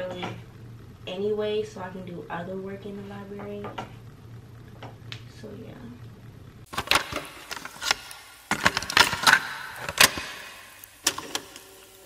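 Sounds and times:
pens clicking and rattling on desk: 6.7s - 10.3s.

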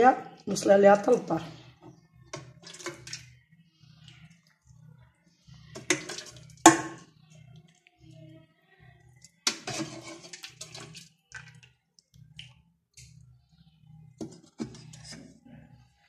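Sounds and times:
ladle scooping from metal pot: 2.4s - 3.2s, 5.8s - 6.5s, 9.4s - 11.5s, 14.2s - 15.4s
broth pouring and splashing: 2.4s - 3.4s, 5.8s - 6.8s, 9.4s - 12.5s.

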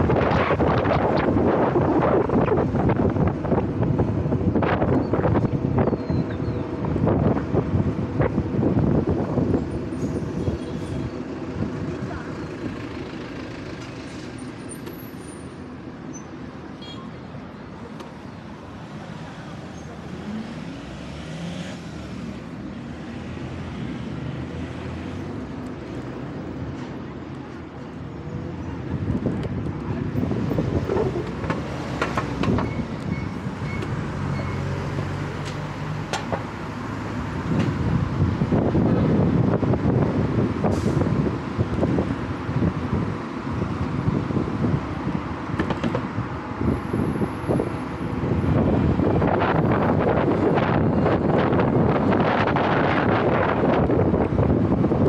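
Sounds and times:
wind rumble on microphone: 0.0s - 12.8s, 27.6s - 55.0s
road and traffic noise: 0.0s - 55.0s
sharp clicks and knocks: 31.2s - 33.1s, 35.4s - 36.5s, 45.6s - 46.1s.

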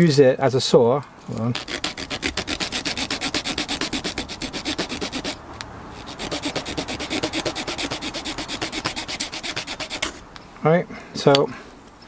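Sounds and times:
saw edge rasping on wood: 1.5s - 10.3s.

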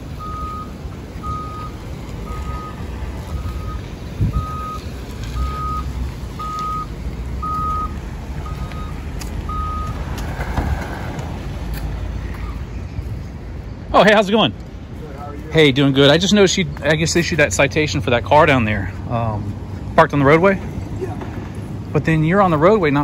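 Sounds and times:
low engine rumble: 0.0s - 23.0s
reversing alarm beeps: 0.2s - 4.8s, 5.4s - 10.0s.

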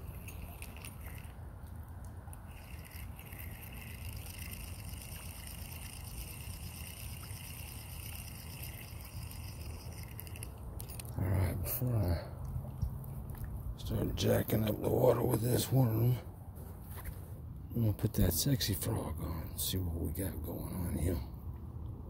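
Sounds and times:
low rumble of wind: 0.0s - 22.0s
high buzzing drone: 2.4s - 11.0s.

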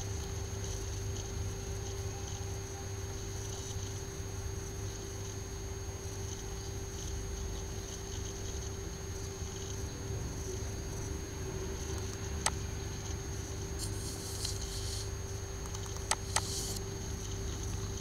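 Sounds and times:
electrical hum and hiss: 0.0s - 18.0s
soft rustle: 13.8s - 15.1s
computer mouse clicks: 15.6s - 16.8s.

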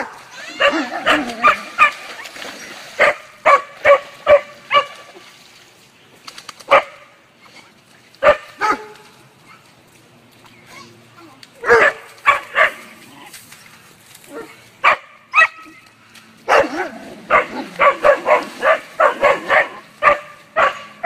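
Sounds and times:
dogs barking: 0.0s - 2.0s, 3.0s - 5.1s, 6.7s - 7.1s, 8.2s - 9.0s, 11.6s - 12.9s, 14.3s - 15.8s, 16.4s - 21.0s.

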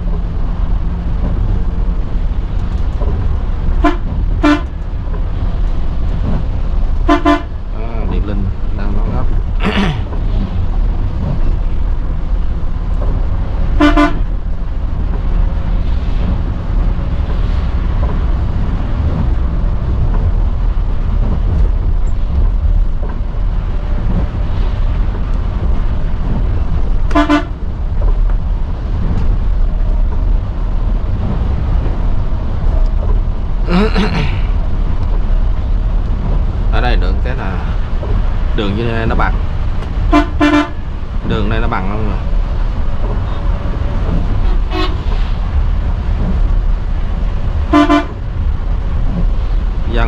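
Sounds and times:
coach engine and road noise: 0.0s - 50.0s
horn toots: 3.8s - 4.8s, 7.0s - 7.6s, 13.8s - 14.3s, 27.1s - 27.6s, 40.1s - 40.8s, 44.4s - 45.2s, 47.7s - 48.2s.

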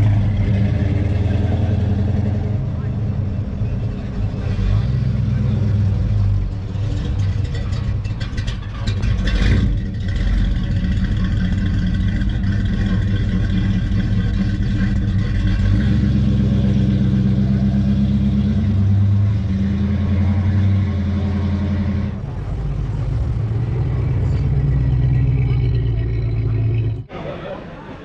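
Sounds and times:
car engine idling: 0.0s - 19.3s, 20.2s - 27.3s.

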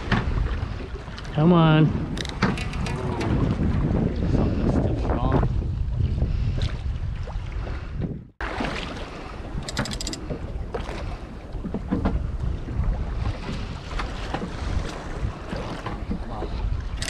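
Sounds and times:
wind buffeting microphone: 0.0s - 8.4s, 9.0s - 17.0s
boat engine running: 9.3s - 17.0s.

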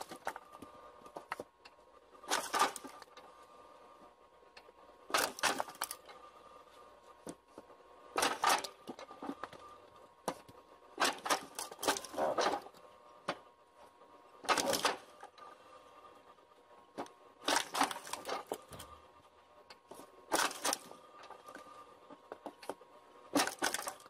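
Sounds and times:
faint mechanical hum: 0.0s - 24.0s
wood pieces clattering: 2.3s - 3.2s, 5.1s - 6.1s, 8.2s - 9.5s, 11.0s - 12.7s, 17.4s - 18.9s, 20.3s - 21.0s, 23.3s - 24.0s.

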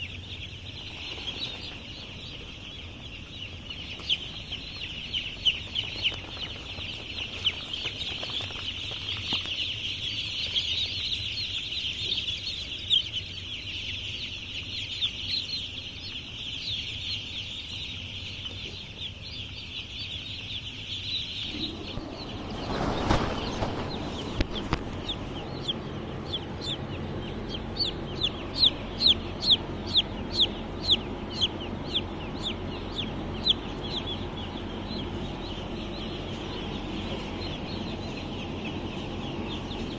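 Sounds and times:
chicks peeping shrilly: 0.0s - 39.9s
loud falling peeps: 0.0s - 39.9s
rustling noise: 21.5s - 25.2s.

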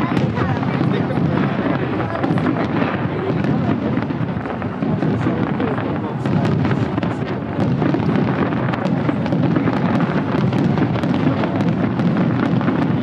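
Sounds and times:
fireworks crackling and popping: 0.0s - 13.0s.

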